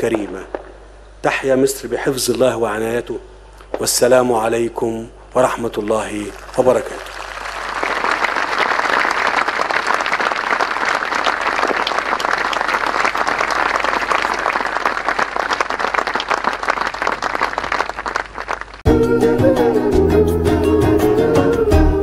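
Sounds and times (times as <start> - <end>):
audience applauding: 6.3 - 18.8.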